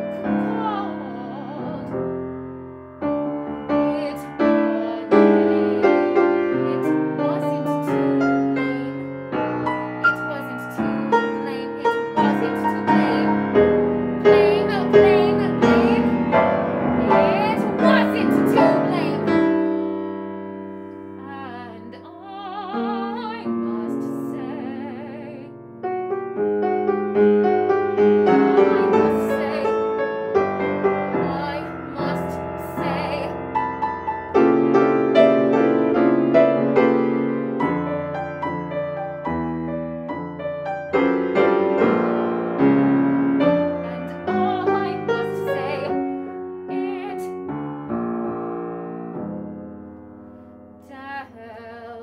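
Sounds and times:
soprano singing with vibrato: 0.0s - 2.2s, 3.7s - 9.3s, 10.0s - 19.8s, 21.2s - 25.6s, 28.2s - 30.0s, 31.0s - 33.5s, 43.5s - 47.5s, 50.8s - 52.0s
piano chords: 0.0s - 52.0s.

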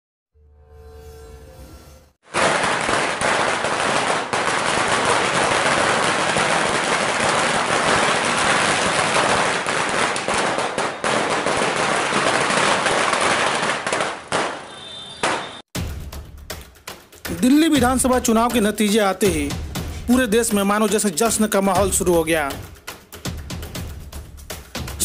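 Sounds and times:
firecrackers crackling: 2.3s - 15.7s.

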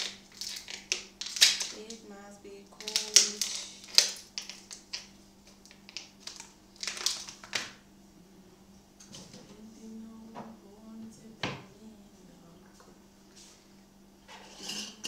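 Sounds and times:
ice cubes cracking in tray: 0.0s - 2.0s, 2.8s - 7.8s.

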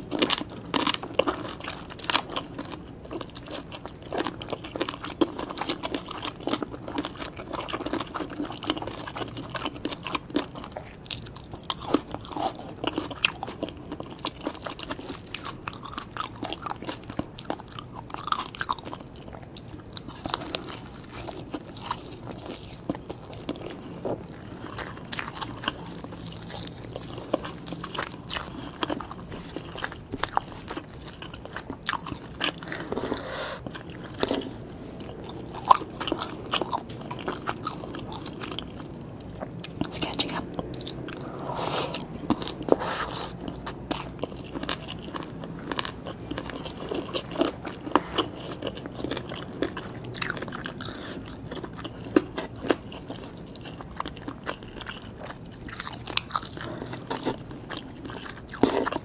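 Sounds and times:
chewing and biting food: 0.0s - 59.0s.

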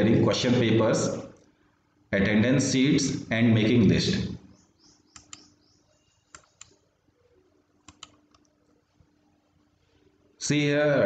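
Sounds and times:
faint low hum: 0.0s - 11.0s
soft computer clicks: 5.1s - 5.6s, 6.3s - 6.8s, 7.8s - 8.8s.

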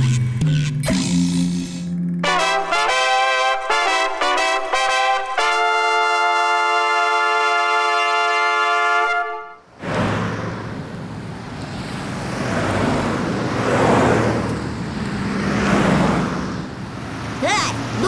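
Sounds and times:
vehicles passing: 1.8s - 18.0s
brass chord: 2.2s - 9.6s.

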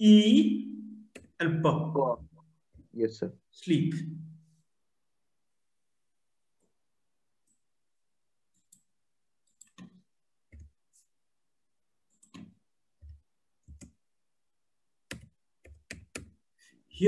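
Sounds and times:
keyboard and mouse clicks: 1.1s - 1.4s, 8.5s - 10.8s, 12.1s - 14.0s, 15.1s - 16.4s.

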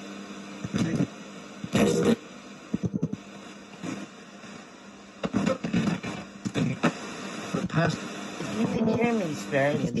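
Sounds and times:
static hiss: 0.2s - 10.0s
clipped broadcast voice fragments: 0.7s - 2.2s, 5.2s - 10.0s
radio sweeping through stations: 0.7s - 2.2s, 2.8s - 4.6s, 5.2s - 10.0s.

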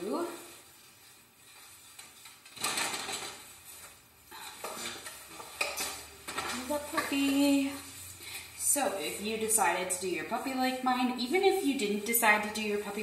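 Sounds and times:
paintbrush scratching paint: 0.1s - 2.5s, 6.6s - 13.0s.

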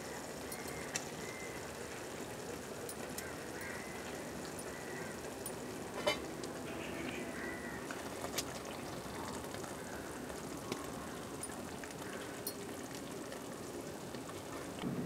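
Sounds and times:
gravy simmering in a pot: 0.0s - 15.0s.

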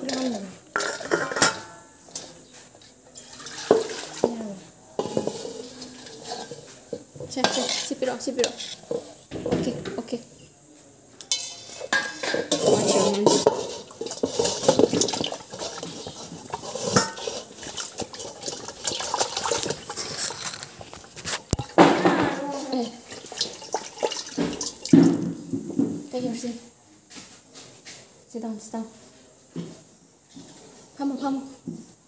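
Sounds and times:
metal dishes clinking and scraping: 0.0s - 10.1s, 11.2s - 26.1s.

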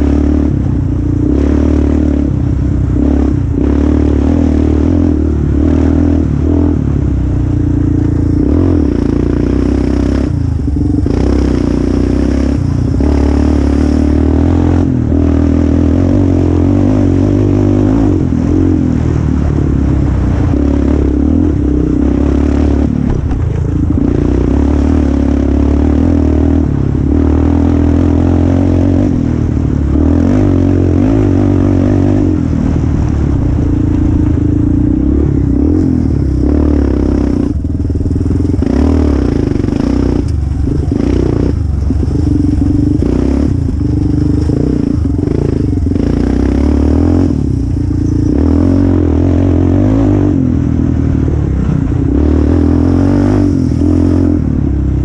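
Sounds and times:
quad bike engine revving: 0.0s - 55.0s
chassis rattling over bumps: 18.2s - 25.6s, 29.1s - 48.9s.

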